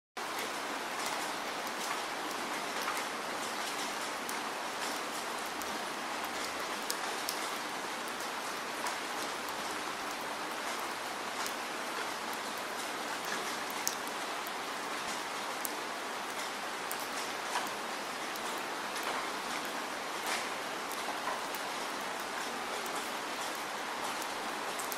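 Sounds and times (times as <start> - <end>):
rain falling: 0.2 - 24.9.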